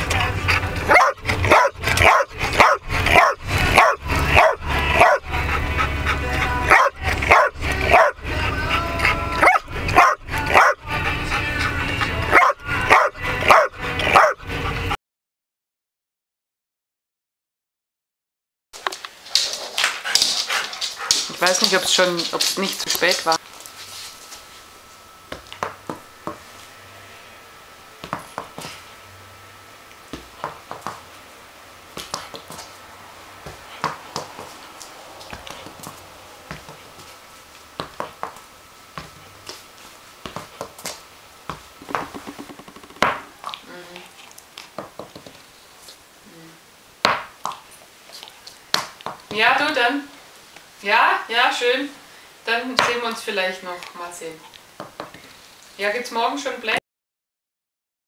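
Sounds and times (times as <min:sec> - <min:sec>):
low hum: 0:00.0 - 0:15.0, 0:21.9 - 0:44.3
dog barking: 0:00.9 - 0:05.4, 0:06.6 - 0:08.2, 0:09.1 - 0:11.0, 0:12.3 - 0:14.4.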